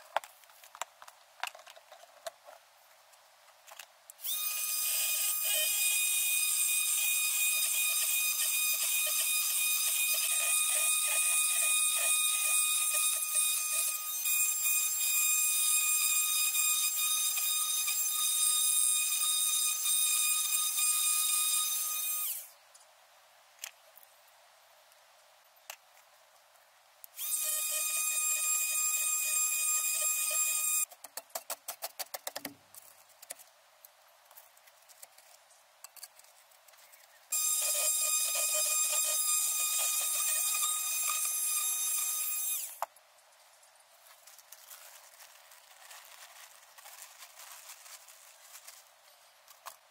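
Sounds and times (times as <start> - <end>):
power tool cutting clay pipe: 4.2 - 22.5, 27.2 - 30.9, 37.3 - 42.8.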